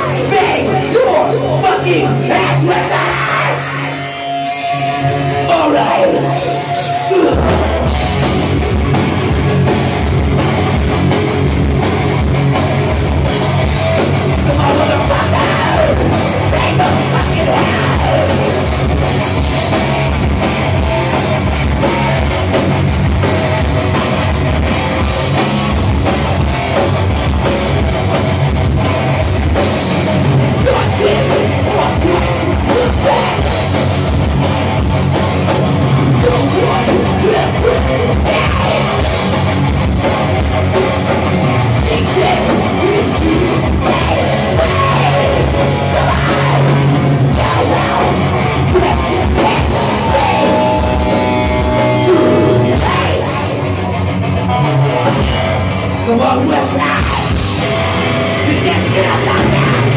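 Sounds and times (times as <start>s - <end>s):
bass guitar: 0.0s - 59.9s
distorted electric guitars: 0.0s - 59.9s
drum kit: 0.0s - 59.9s
heavy metal band playing live: 0.0s - 59.9s.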